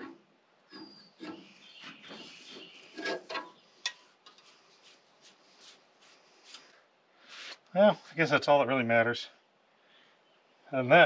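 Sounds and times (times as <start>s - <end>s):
hands handling engine parts: 0.0s - 6.8s.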